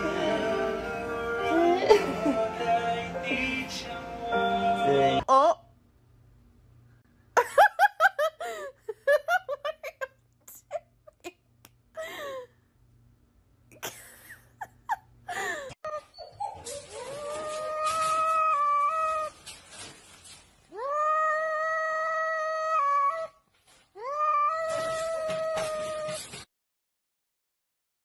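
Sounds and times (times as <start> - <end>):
person laughing: 1.6 - 2.5, 7.4 - 11.4, 13.8 - 15.8
cat yowling: 20.7 - 23.4, 24.0 - 26.2.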